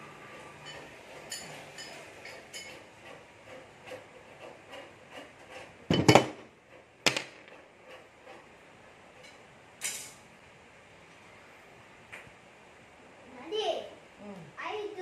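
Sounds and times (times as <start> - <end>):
metal scrape: 0.0 - 10.2.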